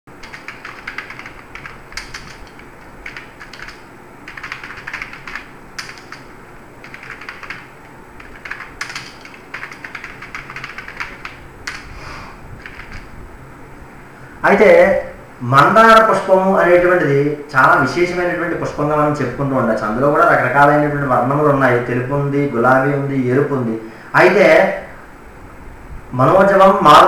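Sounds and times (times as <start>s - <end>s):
computer keyboard typing: 0.2s - 11.9s, 12.6s - 13.1s.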